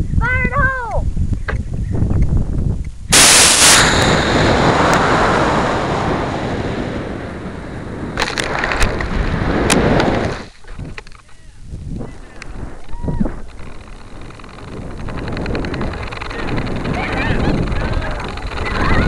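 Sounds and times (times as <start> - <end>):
rushing roar of rocket thrust: 3.1 - 8.2, 12.1 - 19.0
rocket motor igniting blast: 3.1 - 11.0, 12.0 - 19.0
sharp clicks: 10.8 - 18.8.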